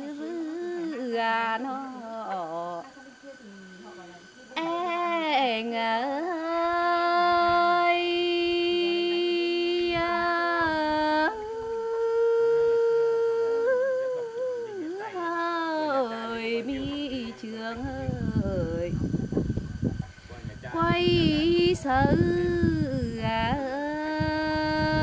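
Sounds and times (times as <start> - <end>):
woman singing unaccompanied: 0.0 - 4.0, 4.6 - 19.0, 20.7 - 25.0.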